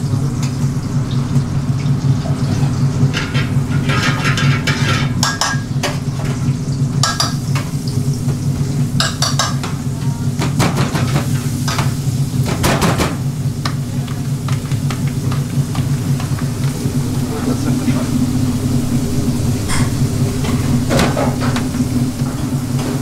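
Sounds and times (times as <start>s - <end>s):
frying sizzle: 0.0s - 23.0s
steady low hum: 0.0s - 23.0s
pans and utensils clinking: 2.4s - 7.7s, 9.0s - 13.1s.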